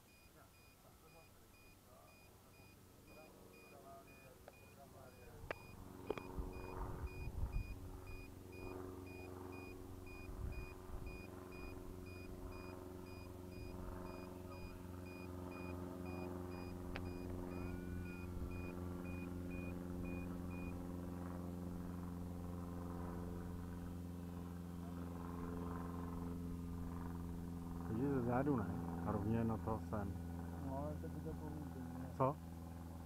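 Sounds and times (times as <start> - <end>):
high electronic beeps: 0.0 - 20.7
low mechanical hum: 0.0 - 33.0.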